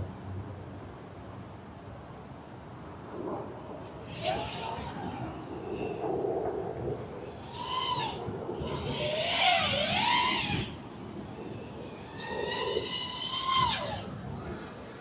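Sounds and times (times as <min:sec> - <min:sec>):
drone motors whining: 0:07.3 - 0:14.1.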